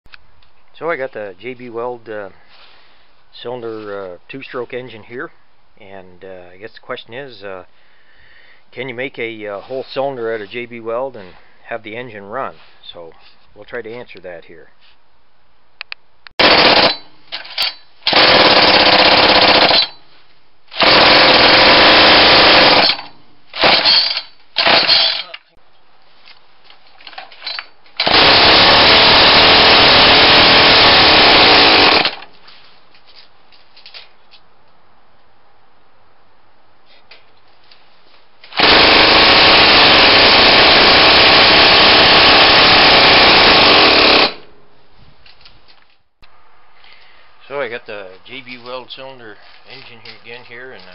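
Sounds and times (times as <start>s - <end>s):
small two-stroke engine rattling: 28.0s - 32.3s.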